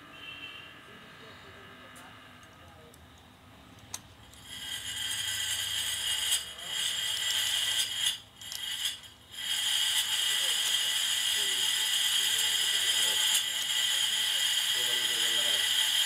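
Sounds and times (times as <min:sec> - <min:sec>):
machinery whirring with high whine: 0:04.2 - 0:16.0.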